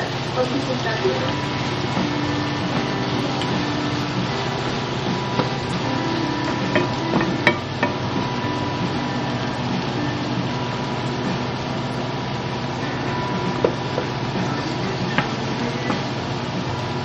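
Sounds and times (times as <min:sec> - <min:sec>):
meat sizzling in a skillet: 0:00.0 - 0:17.0
spatula knocking against pan: 0:06.7 - 0:08.0.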